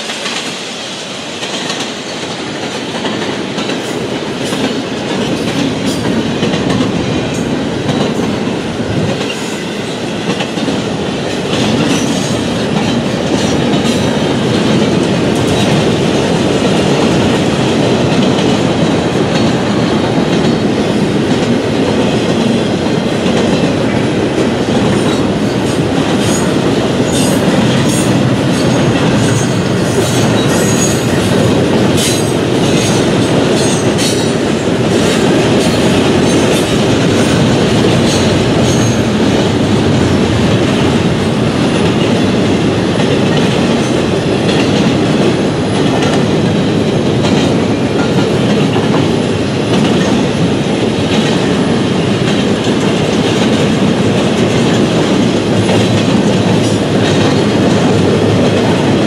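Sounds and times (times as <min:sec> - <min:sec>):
freight train rolling past: 0:00.0 - 0:59.0.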